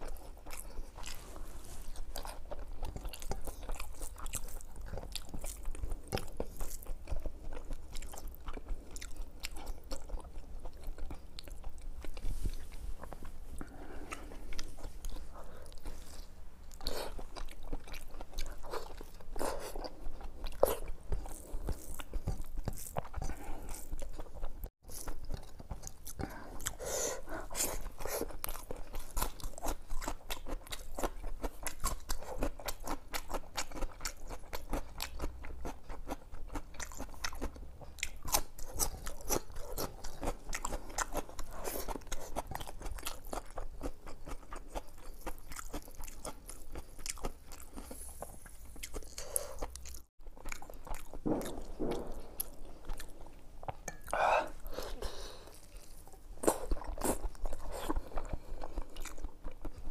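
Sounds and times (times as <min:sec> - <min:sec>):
chewing food: 0:00.0 - 0:59.9.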